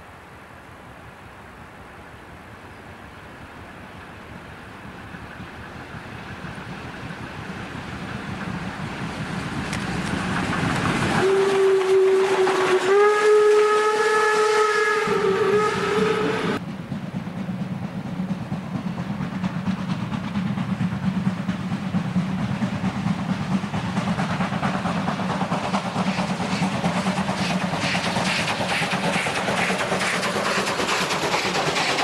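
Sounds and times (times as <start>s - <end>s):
steam train rumbling: 0.0s - 32.0s
steam train exhaust beats: 2.2s - 32.0s
steam locomotive whistle: 11.2s - 16.6s.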